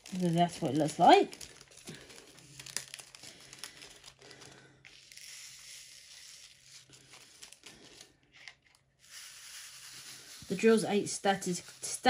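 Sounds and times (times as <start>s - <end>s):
plastic bags crinkling: 0.0s - 5.3s, 6.4s - 8.9s
plastic rustling: 0.0s - 12.0s.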